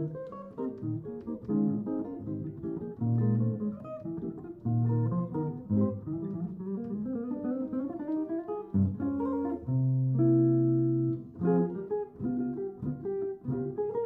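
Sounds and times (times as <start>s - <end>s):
clean electric guitar: 0.0s - 14.0s.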